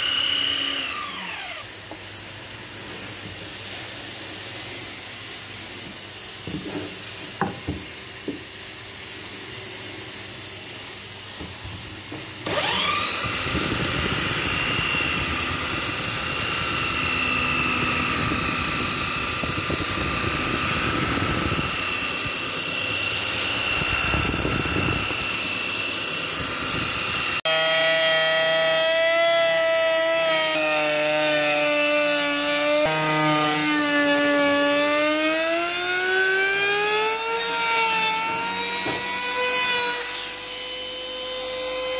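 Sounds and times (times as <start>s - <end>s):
power tool cutting wood: 0.0s - 2.0s, 12.4s - 41.9s.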